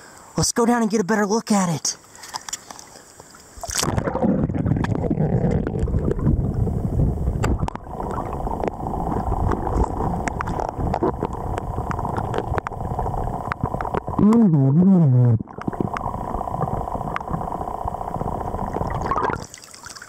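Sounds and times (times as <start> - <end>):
underwater current rushing: 3.6 - 14.2, 15.4 - 19.6.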